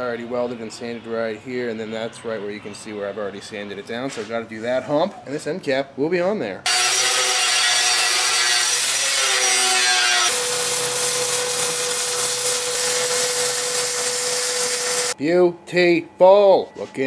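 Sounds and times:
angle grinder grinding metal: 0:06.7 - 0:15.2
welding hiss: 0:09.0 - 0:15.2.

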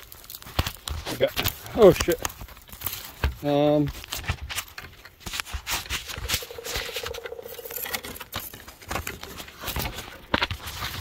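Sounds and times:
phone handling scrapes and knocks: 0:05.2 - 0:10.0.

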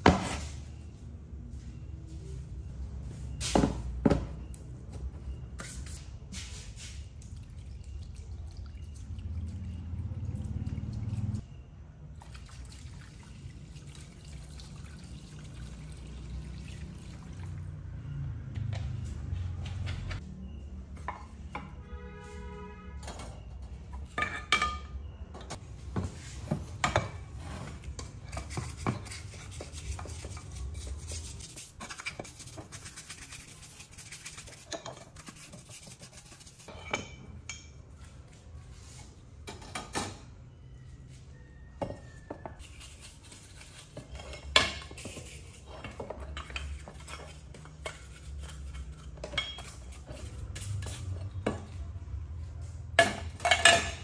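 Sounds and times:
stiff brush scrubbing: 0:28.4 - 0:36.7.

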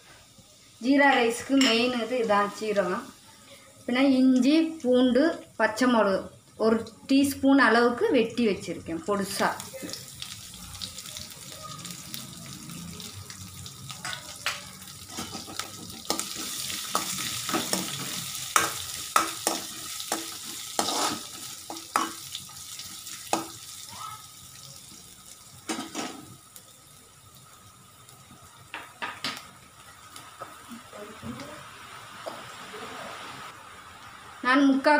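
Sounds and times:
spices sizzling in hot oil: 0:00.0 - 0:34.9
spoon scraping metal pan: 0:20.4 - 0:22.2.

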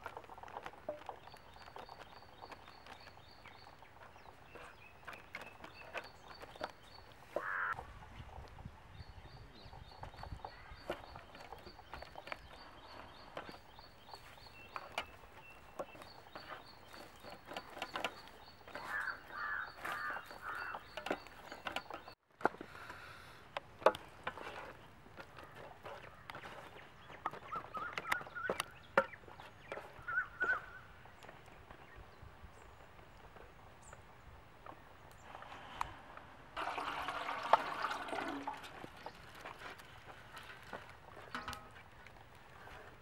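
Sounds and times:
poultry calling: 0:07.3 - 0:07.8, 0:18.7 - 0:21.3, 0:30.0 - 0:30.9.

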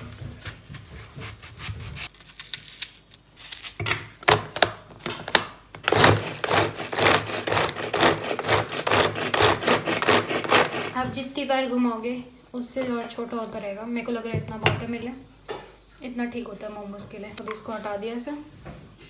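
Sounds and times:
vegetable chopper rasping strokes: 0:05.8 - 0:11.0.

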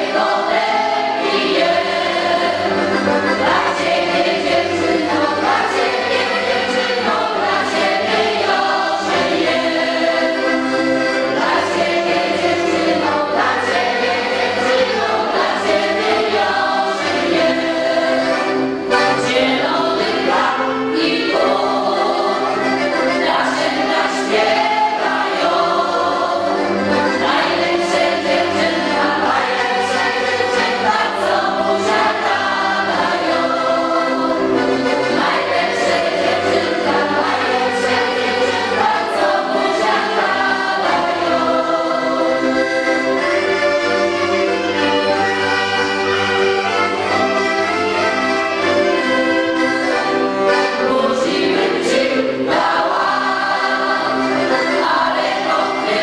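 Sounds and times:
double bass: 0:00.0 - 0:55.8
accordion: 0:00.0 - 0:56.0
women's choir singing: 0:00.0 - 0:56.0
clarinet: 0:41.9 - 0:51.1.

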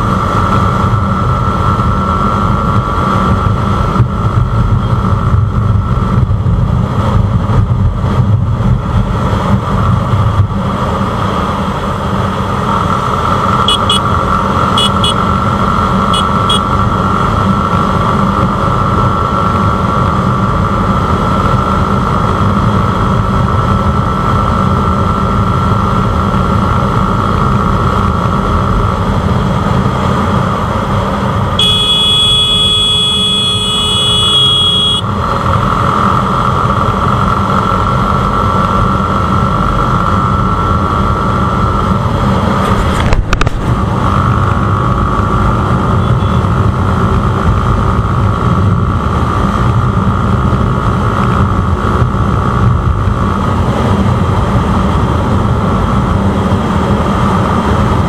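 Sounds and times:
motorcycle engine: 0:00.0 - 0:58.0
high steady tone: 0:13.6 - 0:15.3, 0:16.0 - 0:16.7, 0:31.6 - 0:35.2
wind noise: 0:40.1 - 0:58.0.

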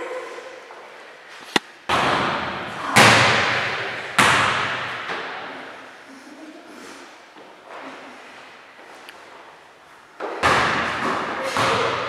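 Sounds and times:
ball thudding in a hall: 0:01.4 - 0:06.0, 0:10.2 - 0:12.0.

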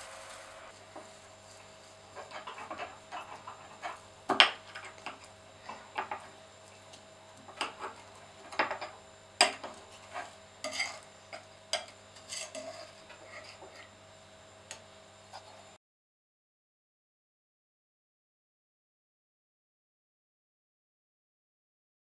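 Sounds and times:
knife scraping and clinking plate: 0:07.6 - 0:13.9.

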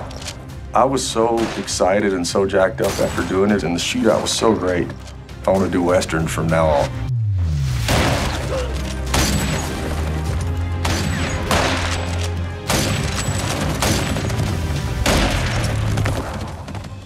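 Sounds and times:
film score music: 0:00.0 - 0:17.0
low drone: 0:06.9 - 0:09.2
heavy gunshots: 0:07.8 - 0:10.1, 0:10.8 - 0:16.9.

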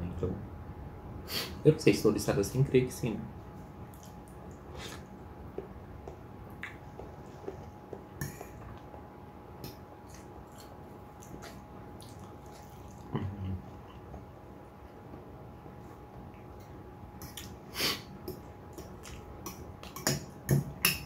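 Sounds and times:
wet mouth sounds: 0:03.9 - 0:08.9, 0:09.6 - 0:14.1.

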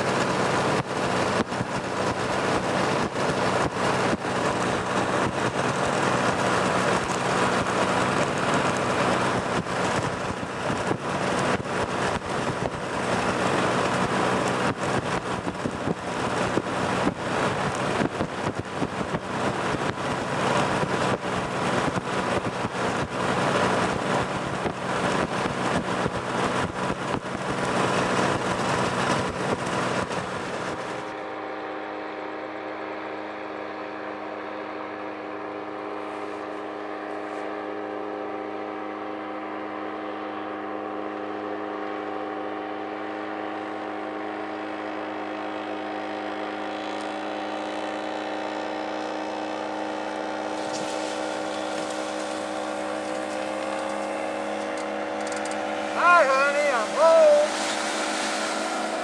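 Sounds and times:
wind buffeting microphone: 0:00.0 - 0:31.0
paraglider engine and propeller: 0:00.0 - 0:59.0.

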